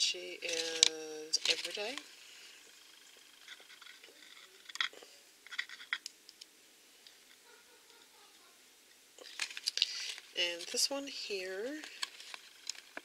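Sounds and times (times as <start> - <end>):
light handling clicks and rustles: 0.4 - 2.1.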